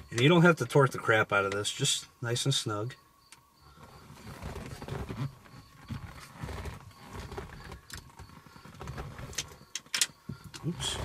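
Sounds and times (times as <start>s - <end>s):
handling rustle: 3.7s - 10.0s.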